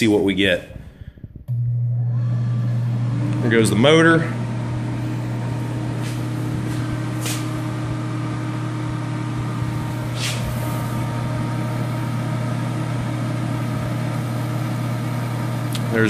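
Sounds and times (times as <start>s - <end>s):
heater fan motor humming: 0.0s - 16.0s
brief hisses: 10.1s - 10.6s.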